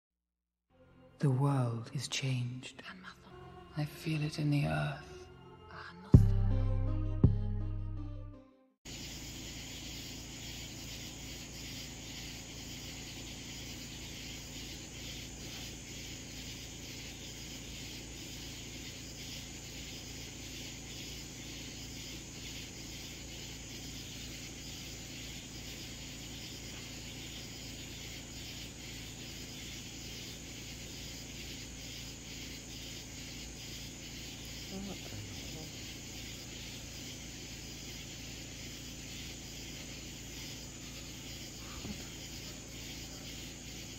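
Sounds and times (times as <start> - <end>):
insects chirring: 8.9 - 43.9.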